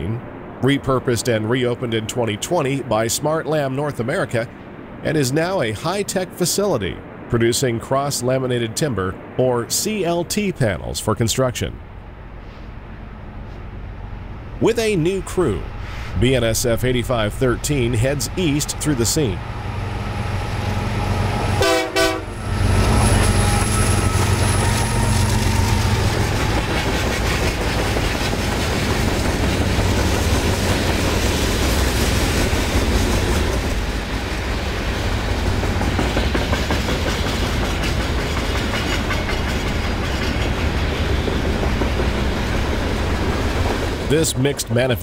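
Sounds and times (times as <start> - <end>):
locomotive engines humming: 0.0 - 45.0
train wheels clattering on rail: 22.8 - 44.1.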